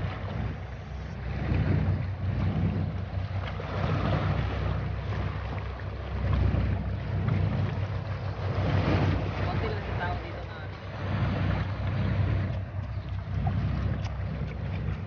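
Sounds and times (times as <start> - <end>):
boat engine drone: 0.0 - 15.0
wind buffeting microphone: 0.0 - 15.0.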